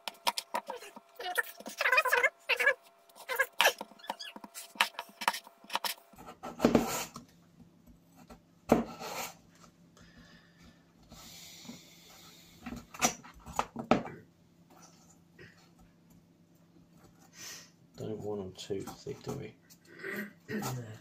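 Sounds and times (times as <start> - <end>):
knife slicing potato on board: 3.3 - 7.2.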